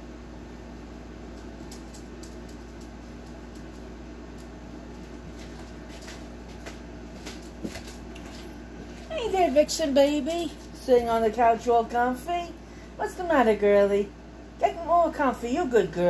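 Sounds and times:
low household hum: 0:00.0 - 0:16.0
dog claws clicking on wood floor: 0:01.3 - 0:04.5, 0:05.4 - 0:08.5.

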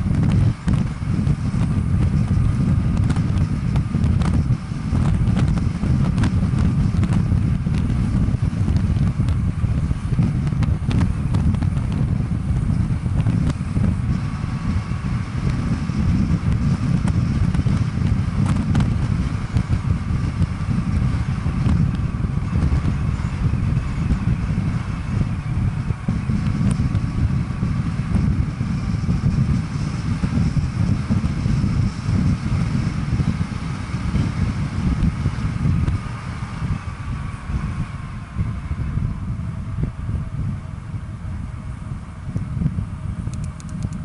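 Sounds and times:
wind buffeting microphone: 0:00.0 - 0:44.0
light clicks from road surface: 0:43.3 - 0:44.0.

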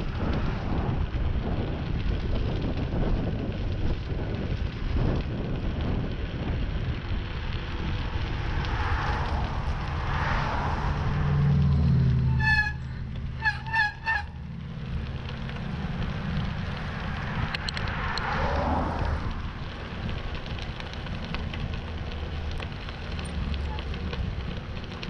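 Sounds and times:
low engine rumble: 0:00.0 - 0:25.0
wind rushing over microphone: 0:00.0 - 0:25.0
car horn honks: 0:12.3 - 0:12.8.

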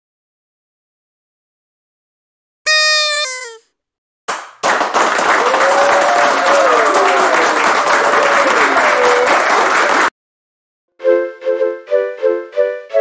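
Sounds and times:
crowd applauding and cheering: 0:04.3 - 0:10.2
voices whooping: 0:05.4 - 0:09.6.

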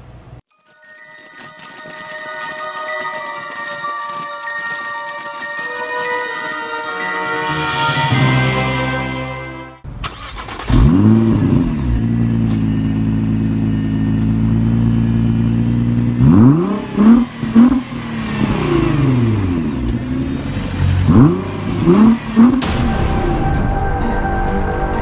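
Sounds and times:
car engine starting: 0:09.8 - 0:24.1
car engine idling: 0:09.9 - 0:22.8
car engine revving: 0:10.0 - 0:23.0.

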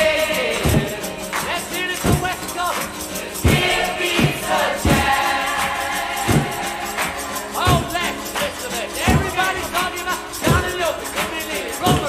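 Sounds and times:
voices singing together: 0:00.0 - 0:12.0
heavy beat: 0:03.4 - 0:12.0.

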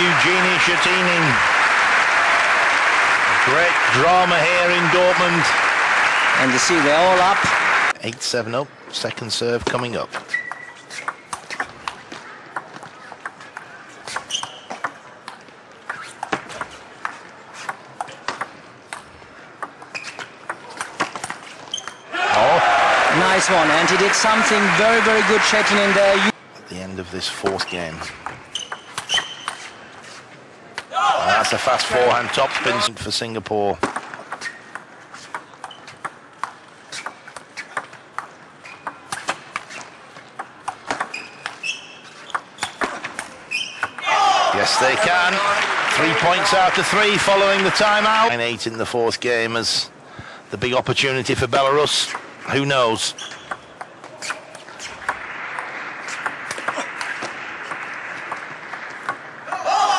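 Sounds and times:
shoe squeaks: 0:10.2 - 0:11.8, 0:14.0 - 0:14.9, 0:15.9 - 0:16.3, 0:19.9 - 0:20.4, 0:21.4 - 0:22.1, 0:27.7 - 0:30.3, 0:34.4 - 0:36.0, 0:38.6 - 0:40.0, 0:41.0 - 0:42.9, 0:43.5 - 0:44.0, 0:53.1 - 0:55.0.

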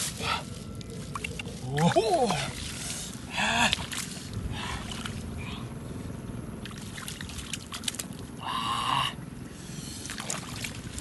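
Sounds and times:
hands squelching in wet mud: 0:00.0 - 0:05.2, 0:06.6 - 0:08.2, 0:09.9 - 0:11.0.

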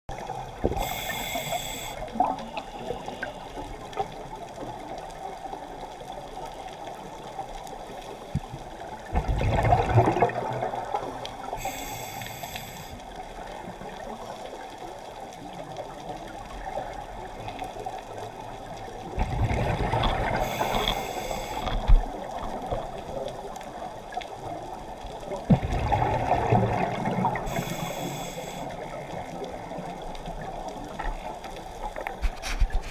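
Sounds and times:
underwater hiss: 0:00.2 - 0:04.0, 0:10.1 - 0:14.0, 0:19.8 - 0:22.5, 0:25.8 - 0:29.8
regulator inhalation hiss: 0:00.7 - 0:03.5, 0:11.5 - 0:13.0, 0:20.4 - 0:21.9, 0:27.4 - 0:28.8.

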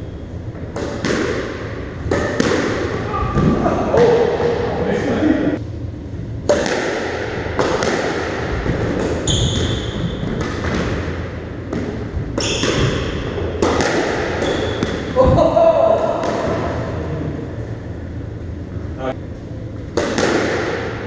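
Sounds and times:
squash ball knocks: 0:00.7 - 0:03.6, 0:06.4 - 0:15.4, 0:19.9 - 0:21.0.

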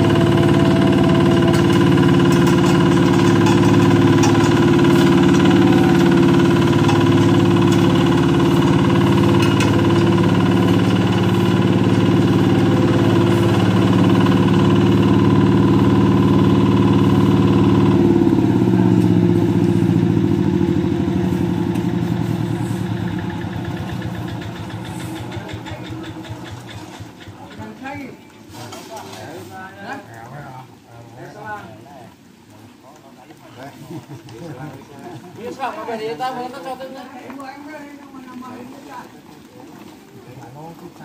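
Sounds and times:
road roller engine running: 0:00.0 - 0:28.0.

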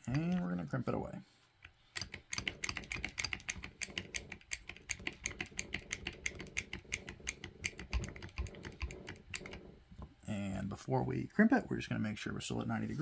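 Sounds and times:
wire crimper clicking: 0:01.6 - 0:10.0.

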